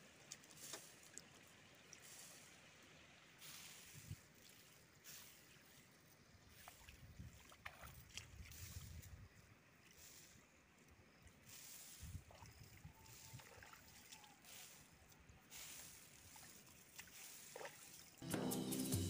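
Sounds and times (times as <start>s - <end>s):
wind rumbling on microphone: 6.9s - 9.4s, 12.0s - 13.6s
flute music: 18.2s - 19.0s.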